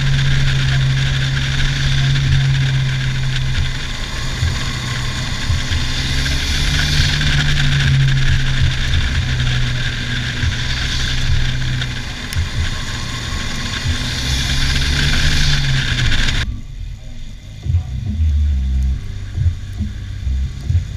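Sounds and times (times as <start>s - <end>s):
car engine running: 0.0s - 20.9s
low rumble: 0.0s - 20.9s.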